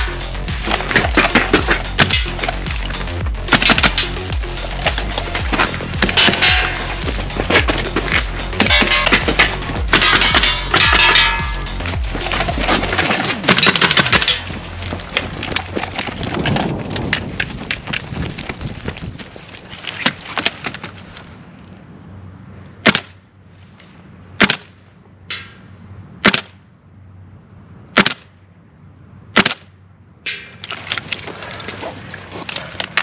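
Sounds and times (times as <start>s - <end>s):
airsoft rifle shots: 24.4s - 24.7s, 26.2s - 26.6s, 28.0s - 28.3s.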